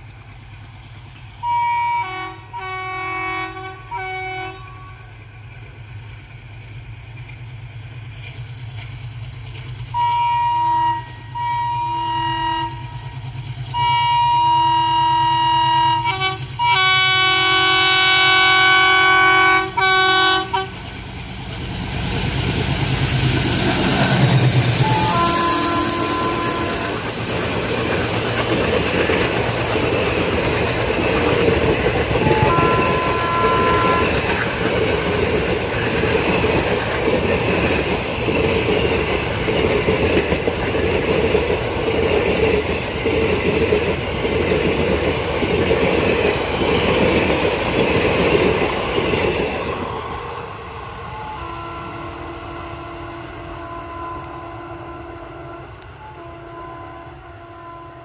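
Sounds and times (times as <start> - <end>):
train coaches clickety-clack: 0.0 - 58.0
locomotive horn: 1.4 - 5.2, 9.9 - 13.1, 13.7 - 20.8, 24.7 - 27.2, 31.8 - 34.3, 51.0 - 58.0.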